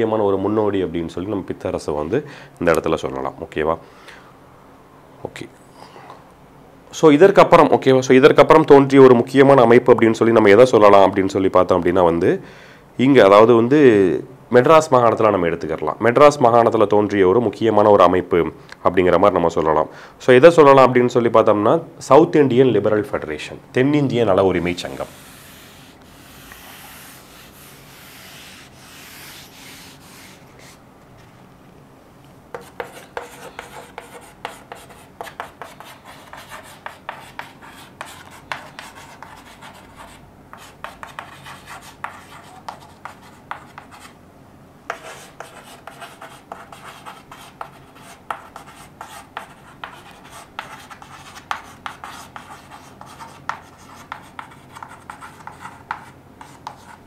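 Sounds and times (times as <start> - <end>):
chalk tapping and scraping on blackboard: 24.6 - 30.8, 32.5 - 44.2, 44.9 - 57.0
duster rubbing chalk off blackboard: 24.6 - 30.8.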